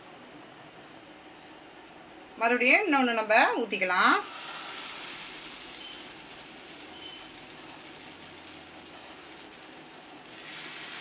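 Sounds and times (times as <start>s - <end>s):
batter sizzling on a pan: 4.0s - 11.0s.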